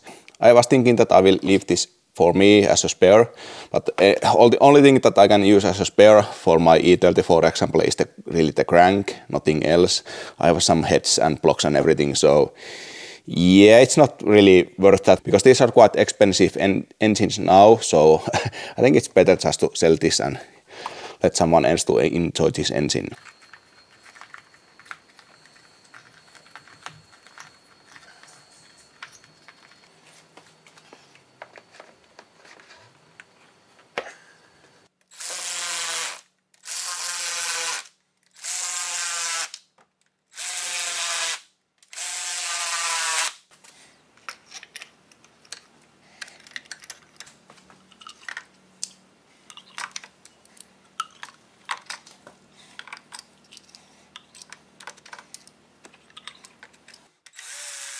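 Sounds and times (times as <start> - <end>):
tools and parts clicking: 23.2 - 30.0, 44.2 - 57.9
cordless drill driving bolts: 57.3 - 57.9.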